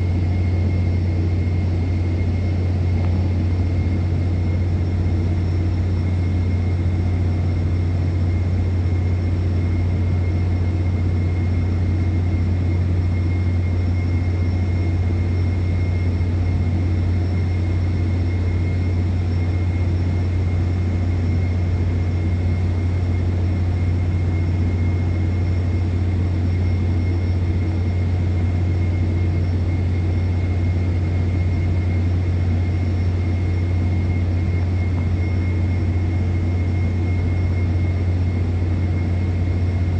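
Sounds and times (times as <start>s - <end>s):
flare burning low rumble: 0.0s - 13.7s
constant hum: 0.0s - 39.9s.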